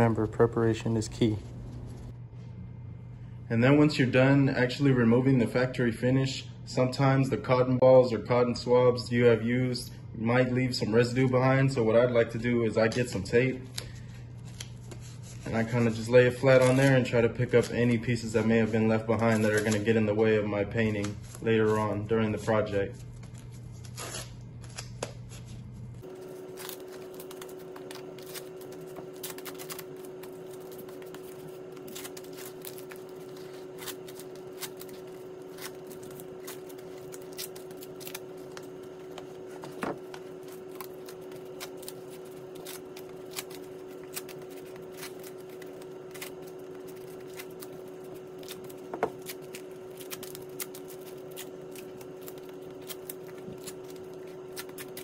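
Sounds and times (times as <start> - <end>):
low hum: 0.0 - 4.2.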